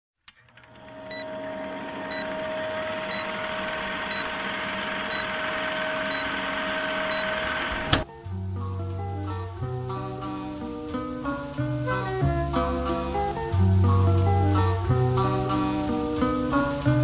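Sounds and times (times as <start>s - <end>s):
film projector rattling: 0.3s - 8.0s
short beeps: 6.0s - 7.4s.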